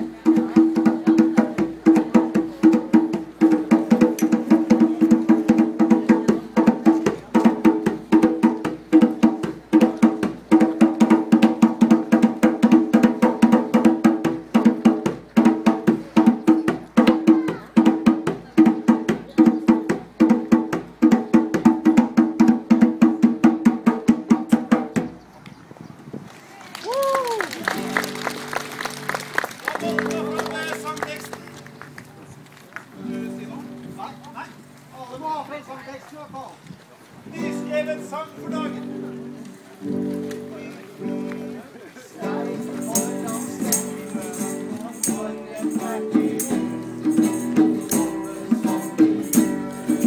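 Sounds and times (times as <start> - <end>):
frame drum beat: 0.0 - 25.2, 42.2 - 50.0
acoustic guitar strumming: 33.0 - 34.9, 37.4 - 41.6, 42.2 - 50.0.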